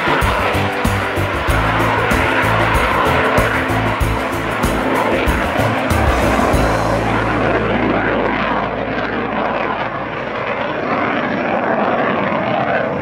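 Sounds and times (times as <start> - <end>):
jet engine rushing: 0.0 - 13.0.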